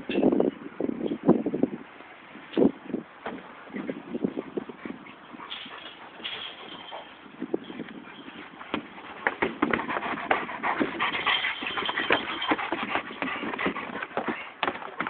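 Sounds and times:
dog scrambling against chain-link fence: 0:05.5 - 0:07.2, 0:09.2 - 0:14.0.

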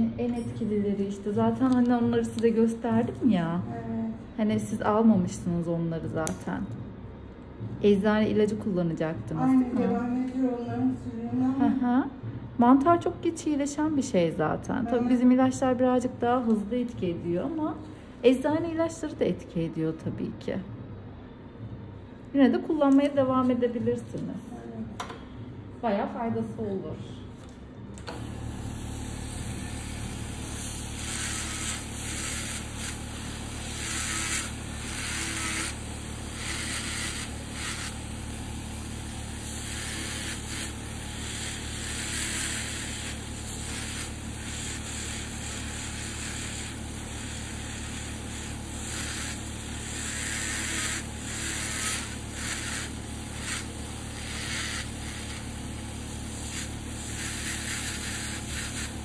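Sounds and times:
electric nail drill grinding: 0:28.1 - 0:59.0.

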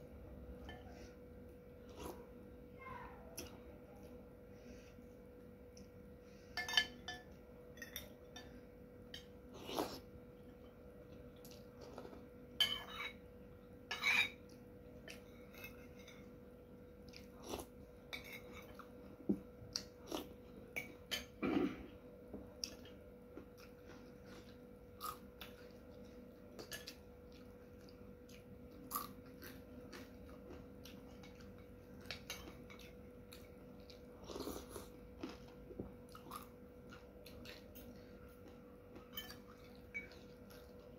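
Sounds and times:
faint steady hum: 0:00.0 - 0:40.9
chewing: 0:17.0 - 0:19.0, 0:22.6 - 0:40.9.

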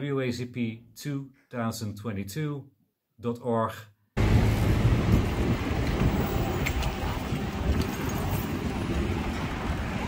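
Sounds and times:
faint street traffic: 0:04.2 - 0:10.0
wind buffeting microphone: 0:04.2 - 0:10.0.

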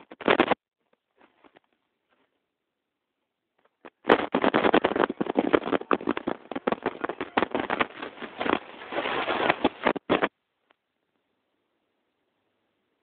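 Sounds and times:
microphone handling crackle: 0:00.0 - 0:02.4, 0:03.6 - 0:10.4.

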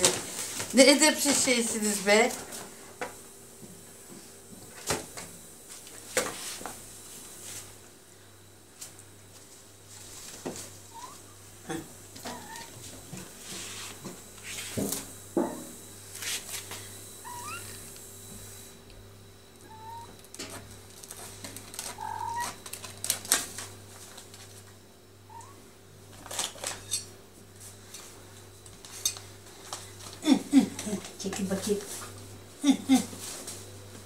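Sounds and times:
faint steady hum: 0:00.0 - 0:34.0
kittens mewing: 0:17.2 - 0:17.8, 0:19.6 - 0:20.2, 0:21.9 - 0:22.6.

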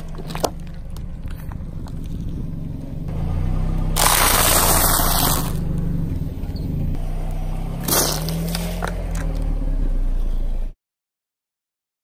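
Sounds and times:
car engine humming low: 0:00.0 - 0:10.8
carton bursting under tyre: 0:04.0 - 0:05.6, 0:07.8 - 0:08.8
sharp crackles: 0:04.0 - 0:05.9
tyre crunch: 0:07.8 - 0:09.4.

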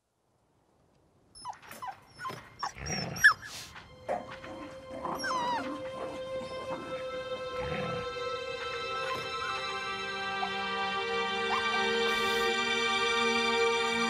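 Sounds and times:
wolves whining and yipping: 0:01.3 - 0:12.6.

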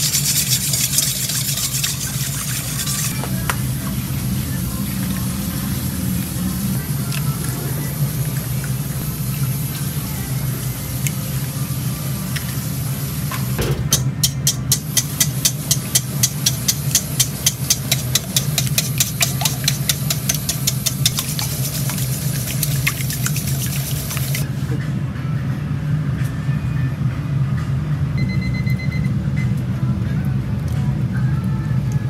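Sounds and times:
whisk clinking in metal bowl: 0:00.0 - 0:03.2, 0:14.2 - 0:24.4
steady low hum: 0:00.0 - 0:32.0.

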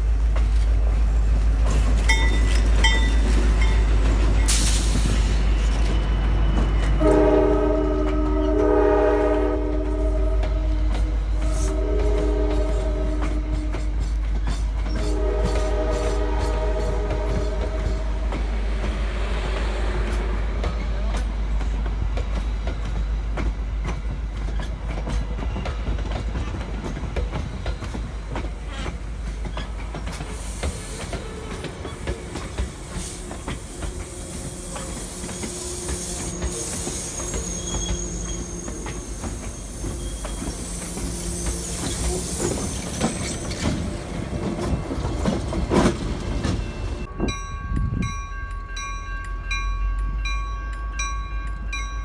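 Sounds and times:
train wheels clacking over rail joints: 0:00.0 - 0:47.1
train rumble: 0:00.0 - 0:52.0
high wheel squeal: 0:04.5 - 0:07.3, 0:29.5 - 0:44.1.

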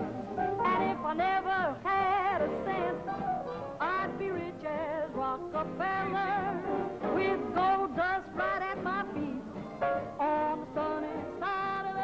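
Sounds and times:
jazz piano accompaniment: 0:00.0 - 0:12.0
person singing with vibrato: 0:00.5 - 0:12.0.

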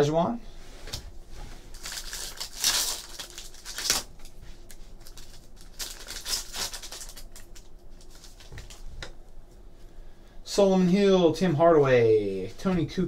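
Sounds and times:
foil wrapper tearing and crinkling: 0:01.7 - 0:08.8.

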